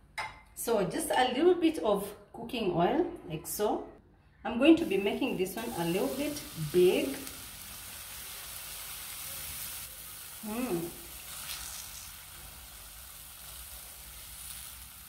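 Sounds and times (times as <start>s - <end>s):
batter sizzling in a frying pan: 4.9s - 15.0s.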